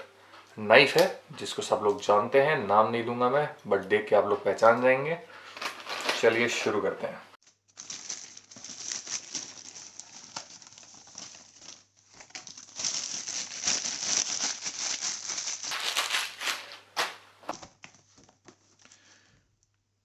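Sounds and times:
plastic mailer bag crinkling: 7.5 - 19.0.

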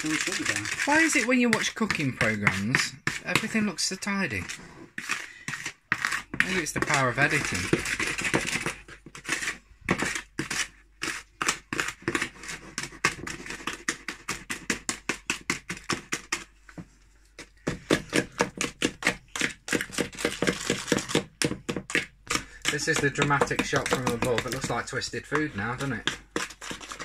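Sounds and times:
utensil clacking against bowl: 19.0 - 27.0.

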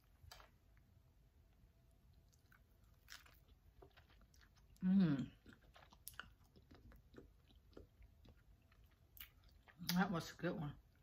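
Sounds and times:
person chewing with wet mouth clicks: 2.1 - 10.0.

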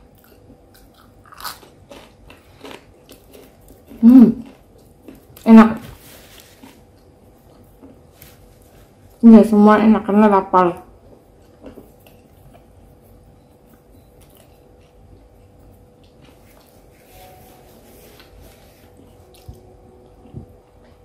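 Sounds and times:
close-up chewing: 0.1 - 5.5, 11.1 - 16.9, 18.2 - 21.0
thin hum: 15.3 - 21.0.

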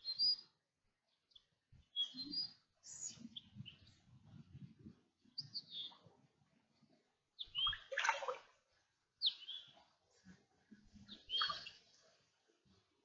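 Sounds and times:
birds chirping: 7.4 - 7.9, 9.2 - 9.8, 11.0 - 12.1
water sloshing from wading: 7.6 - 8.8.

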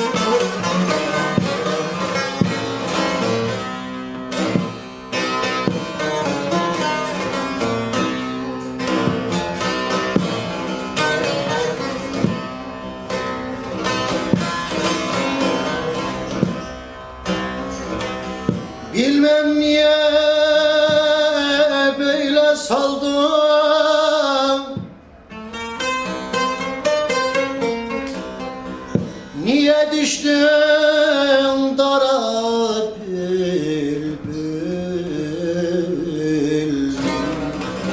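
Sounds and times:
long-necked lute plucked rapidly: 0.0 - 37.9
man singing with vibrato: 18.8 - 24.9, 29.2 - 37.9.

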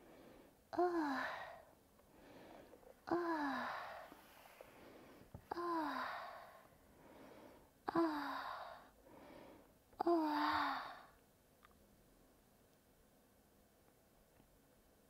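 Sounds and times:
soft breaths drawn in: 0.0 - 0.7, 1.3 - 9.8
woman sighing: 3.0 - 4.2, 5.5 - 6.6, 7.9 - 8.8, 10.0 - 11.1.

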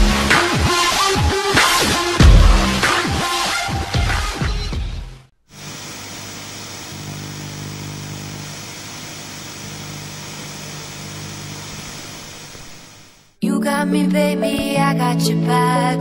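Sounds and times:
constant hiss: 5.5 - 13.4.

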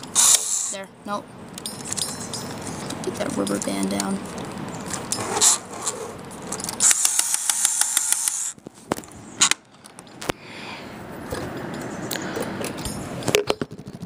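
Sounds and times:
toy train mechanism clattering: 0.0 - 0.8, 1.6 - 8.6
sharp clicks: 6.6 - 8.6.

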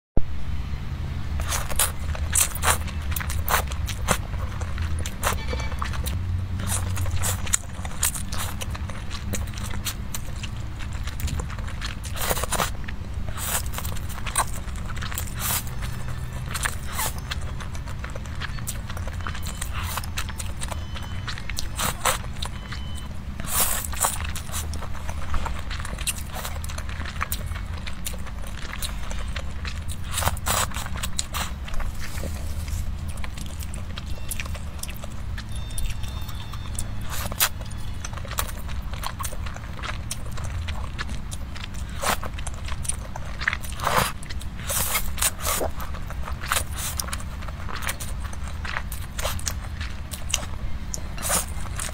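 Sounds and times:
steady low hum: 0.2 - 51.9
slurping and chewing noodles: 1.4 - 51.9
noodle slurp: 6.6 - 21.0, 41.8 - 51.9.

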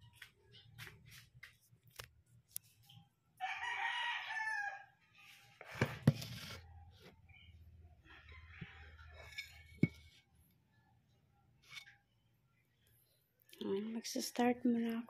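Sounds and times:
rooster crowing: 3.4 - 5.0.

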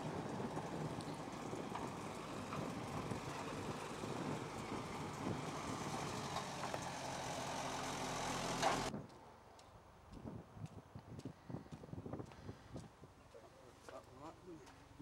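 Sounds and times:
diesel locomotive engine running: 0.0 - 8.9.

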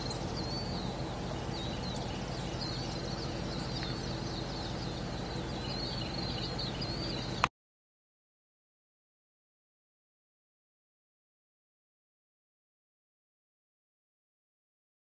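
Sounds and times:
birds singing: 0.0 - 7.5
steady low hum: 0.0 - 7.5.

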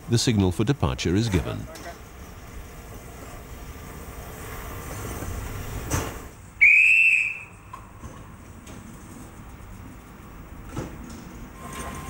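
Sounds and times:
shrill hand whistle: 6.6 - 7.6.

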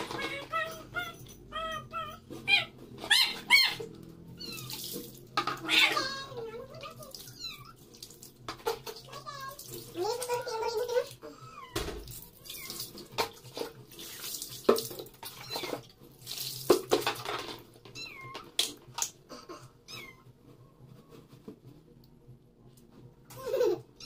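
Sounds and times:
kitten meowing: 0.4 - 4.9
wet fur scrubbing: 4.4 - 5.3
water splashing: 12.0 - 17.0.

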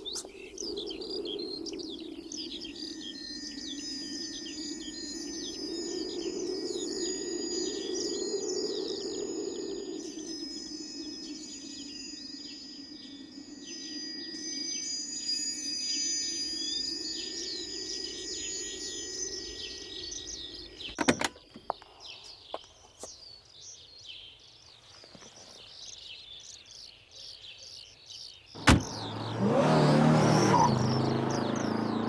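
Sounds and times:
birds chirping: 0.0 - 32.0
car door slamming: 28.6 - 29.4
car engine starting and revving: 28.6 - 32.0.

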